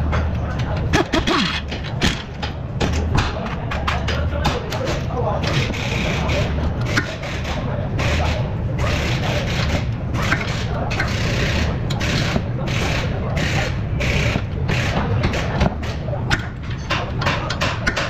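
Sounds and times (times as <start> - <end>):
low workshop rumble: 0.0 - 18.0.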